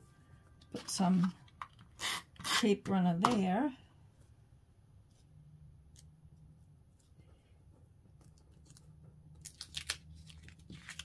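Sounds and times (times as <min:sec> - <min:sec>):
paper crinkling: 0:08.3 - 0:11.0.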